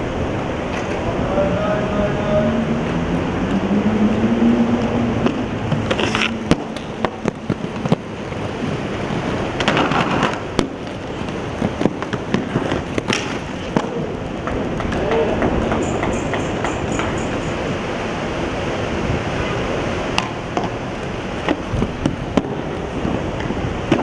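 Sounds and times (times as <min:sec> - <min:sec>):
skateboard wheels rolling on stone: 0:00.0 - 0:01.2, 0:02.6 - 0:24.0
skateboard hitting ground: 0:05.2 - 0:08.4, 0:09.1 - 0:15.7, 0:21.4 - 0:24.0.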